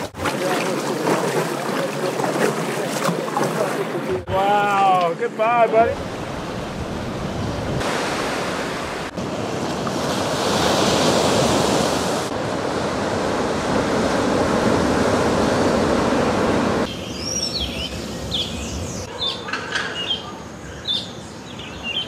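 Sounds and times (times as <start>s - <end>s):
small waves breaking on beach: 7.8s - 16.9s.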